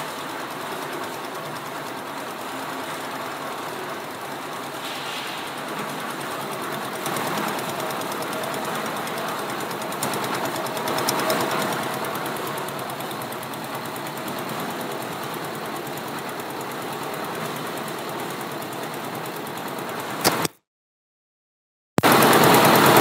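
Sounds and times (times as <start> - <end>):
diesel engine knocking steadily: 0.0 - 20.4, 22.0 - 23.0.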